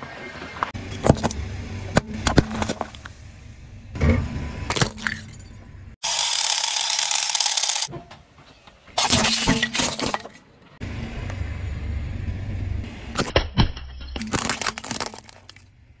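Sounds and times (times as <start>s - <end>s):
low rumble of rolling car: 0.0s - 6.0s, 10.6s - 16.0s
plastic crunching and cracking: 14.2s - 15.7s.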